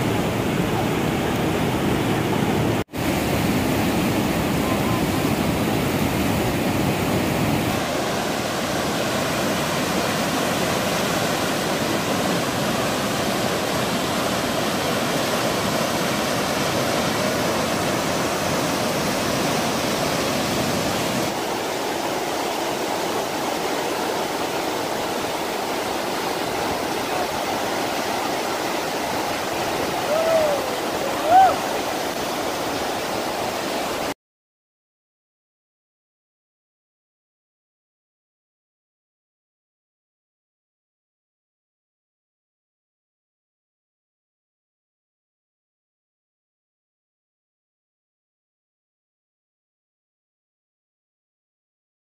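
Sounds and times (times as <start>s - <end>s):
whitewater rapids rushing: 0.0s - 34.2s.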